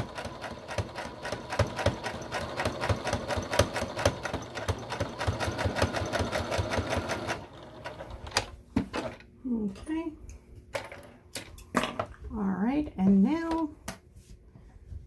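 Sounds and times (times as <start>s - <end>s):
sewing machine stitching: 0.0s - 9.1s.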